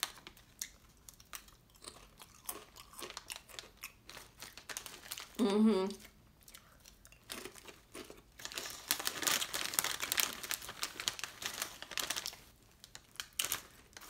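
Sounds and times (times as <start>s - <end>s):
potato chip bag crinkling: 0.0s - 5.4s, 6.9s - 14.0s
soft chewing: 0.2s - 4.6s, 5.9s - 8.9s.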